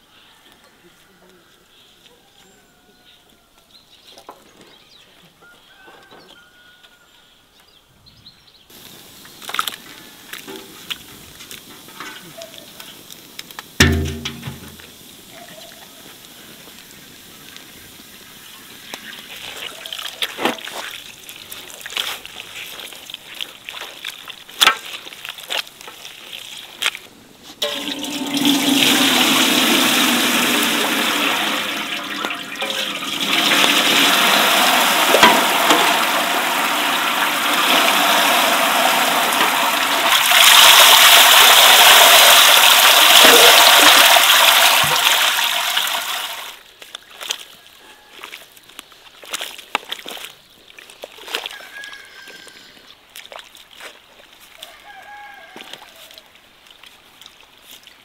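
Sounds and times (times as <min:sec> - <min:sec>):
liquid pouring into a metal pot: 0:13.8 - 0:15.0, 0:27.6 - 0:46.5.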